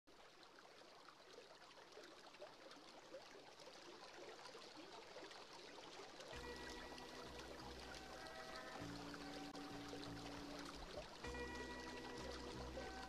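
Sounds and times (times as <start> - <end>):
faint running water: 0.1 - 13.0.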